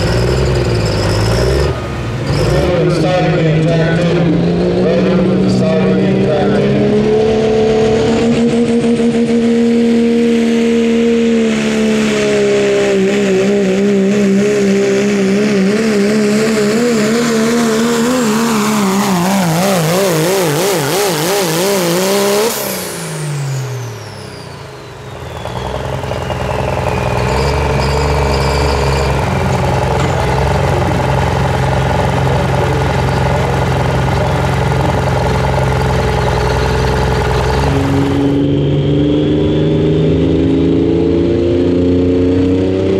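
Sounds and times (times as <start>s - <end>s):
diesel truck engine at full throttle: 0.0s - 42.9s
turbo whistle winding down: 22.4s - 29.3s.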